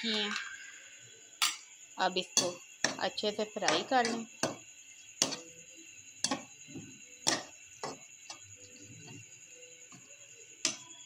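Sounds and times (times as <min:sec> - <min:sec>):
metal spatula knocking on a pan: 0:02.3 - 0:04.6, 0:06.2 - 0:08.1.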